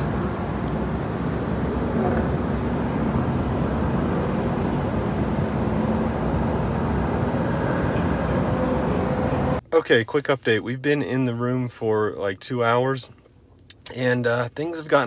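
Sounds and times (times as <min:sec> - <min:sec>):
low rumble: 0:00.0 - 0:09.7.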